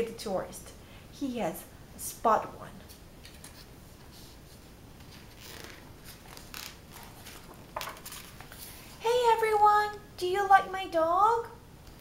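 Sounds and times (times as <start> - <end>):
page turning paper rustle: 2.9 - 8.8.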